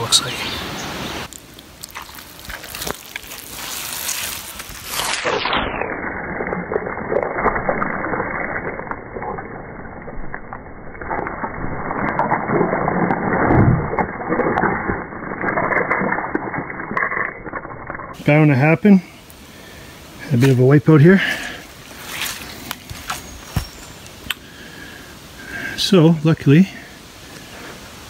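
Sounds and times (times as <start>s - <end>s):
boots squelching through mud: 1.2s - 5.6s, 20.3s - 24.0s.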